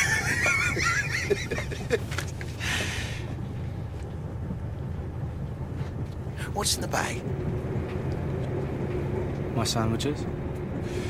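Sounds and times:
man laughing: 0:00.0 - 0:02.4
train carriage rumble: 0:00.0 - 0:11.0.

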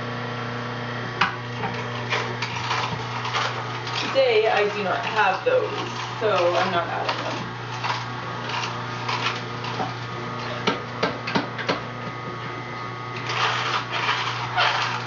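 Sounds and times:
juicer humming: 0:00.0 - 0:15.0
rough grinding noise: 0:01.6 - 0:10.6, 0:13.2 - 0:15.0.

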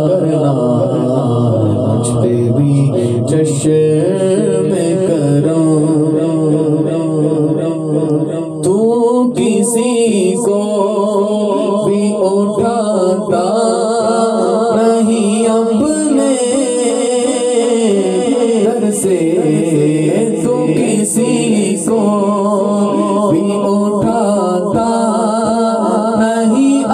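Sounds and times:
man singing with echo: 0:00.0 - 0:26.9.

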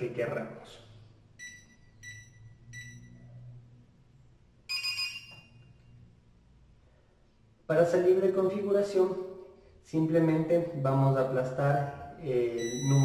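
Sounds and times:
smart lock long beep: 0:01.4 - 0:03.3, 0:04.7 - 0:05.9, 0:12.4 - 0:13.0
smart lock short beeps: 0:01.4 - 0:03.3, 0:04.7 - 0:05.8, 0:12.5 - 0:13.0.

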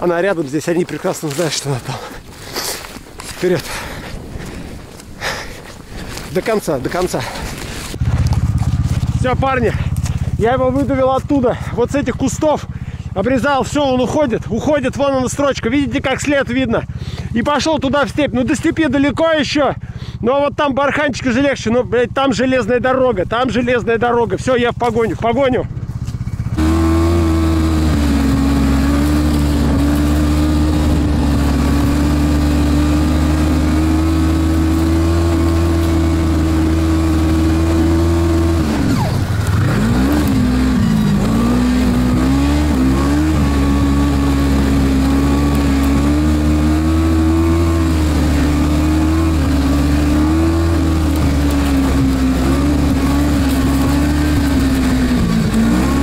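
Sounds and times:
snowmobile engine revving: 0:25.4 - 0:56.0.

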